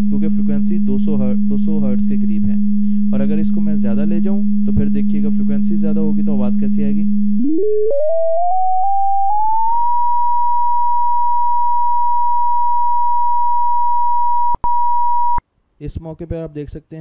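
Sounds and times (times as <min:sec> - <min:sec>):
sine test tone: 0:00.0 - 0:15.4.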